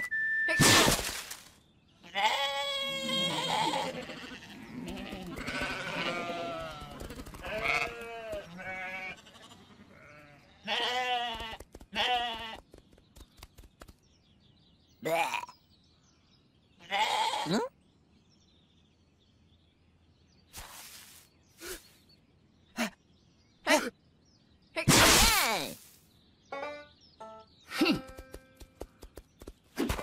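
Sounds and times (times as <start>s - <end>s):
cartoon sheep bleating: 2.1s - 8.0s.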